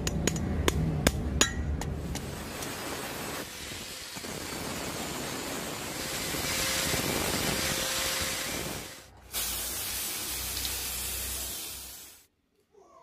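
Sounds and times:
spray paint hissing: 0:02.0 - 0:12.3.

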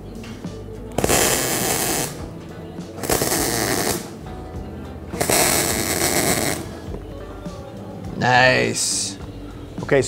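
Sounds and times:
welder arc buzzing: 0:00.9 - 0:04.3, 0:05.1 - 0:06.9.

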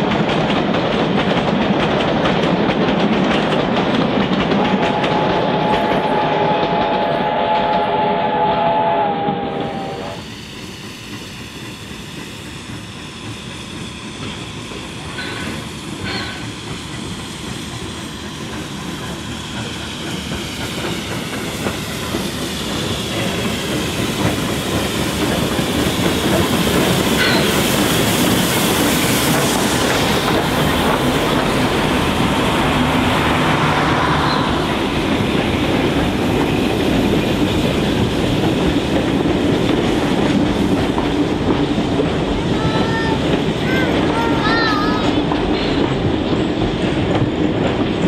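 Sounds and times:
wheels clacking over rail joints: 0:00.0 - 0:08.4, 0:14.2 - 0:48.0
steam train rolling past: 0:00.0 - 0:48.0.

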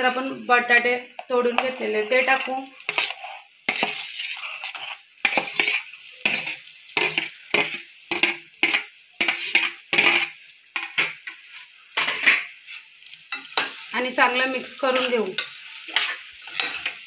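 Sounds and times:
metal spoon scraping steel plate: 0:01.6 - 0:11.0, 0:15.0 - 0:17.0.

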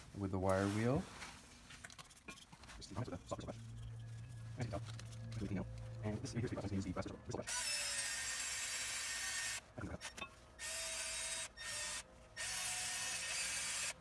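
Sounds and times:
rotary tool motor whine: 0:07.4 - 0:09.7, 0:10.6 - 0:14.0.

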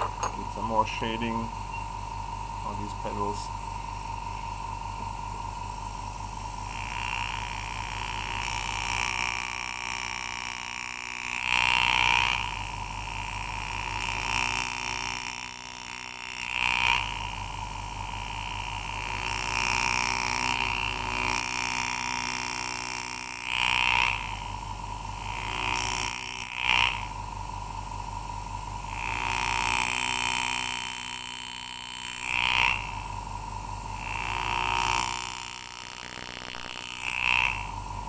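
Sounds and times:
graver cutting metal: 0:00.0 - 0:01.4, 0:34.0 - 0:38.0.

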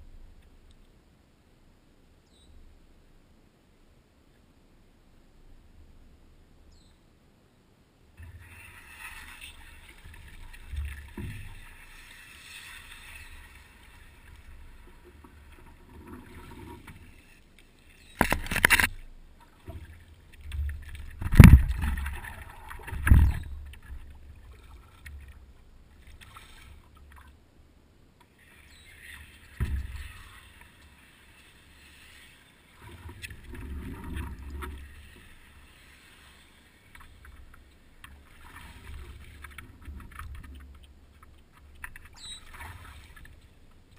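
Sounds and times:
water lapping against hull: 0:08.2 - 0:27.4, 0:28.2 - 0:43.9
knocks and bumps on hull: 0:20.6 - 0:22.2.

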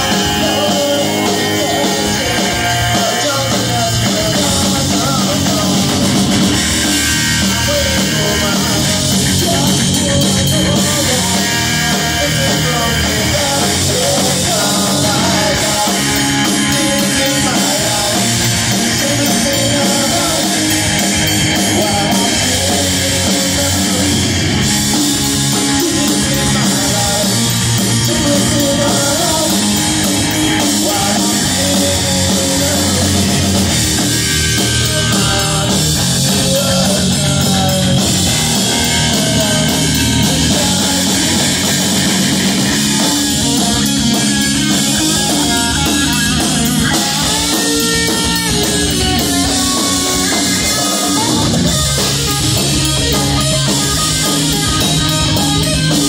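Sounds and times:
bass guitar: 0:00.0 - 0:56.0
drum kit: 0:00.0 - 0:56.0
electric guitar: 0:00.0 - 0:56.0.

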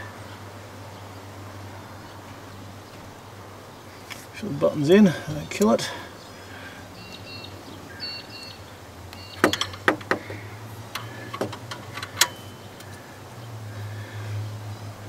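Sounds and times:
torque wrench clicks: 0:10.9 - 0:13.0.

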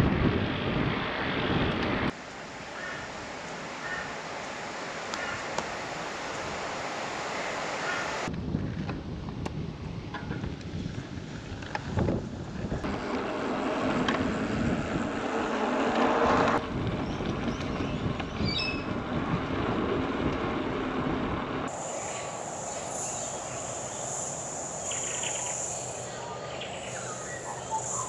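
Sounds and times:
wind on microphone: 0:00.0 - 0:02.2, 0:07.6 - 0:26.1
bicycle tyre noise: 0:00.0 - 0:26.1
steady high hiss: 0:02.1 - 0:08.3, 0:21.7 - 0:28.0.

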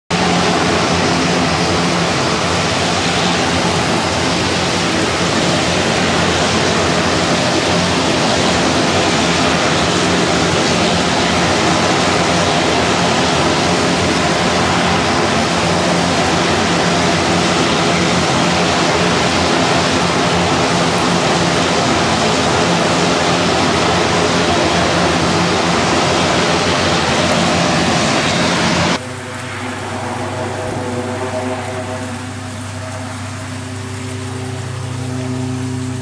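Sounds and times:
turboprop engines running: 0:00.0 - 0:36.0
low hum: 0:00.1 - 0:36.0.

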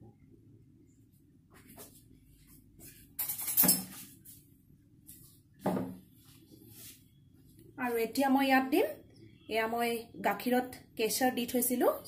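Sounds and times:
kitchen utensils clattering: 0:03.2 - 0:04.0.

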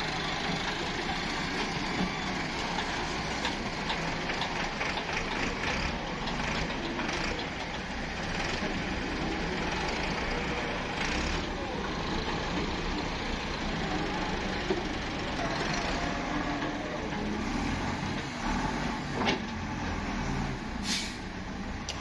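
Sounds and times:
diesel engine running: 0:00.0 - 0:22.0
short hisses: 0:20.8 - 0:21.3.

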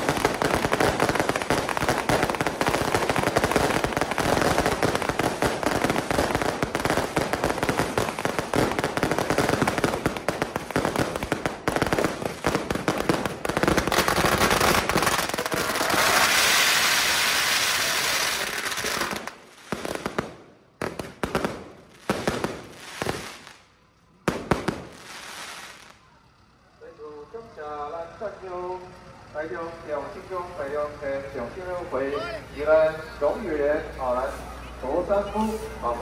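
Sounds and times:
firework fountain hissing: 0:00.0 - 0:26.4
firecrackers crackling and banging: 0:00.0 - 0:36.0
single firework bangs: 0:18.1 - 0:23.6, 0:24.2 - 0:25.9.

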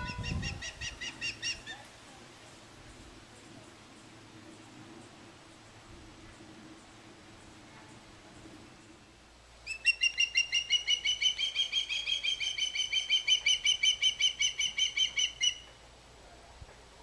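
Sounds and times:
osprey chirping calls: 0:00.0 - 0:01.8, 0:09.6 - 0:15.8.

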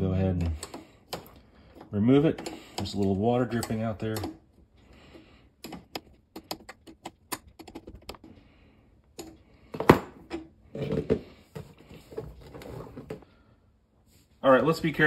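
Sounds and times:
hose line clacking: 0:00.4 - 0:04.4.

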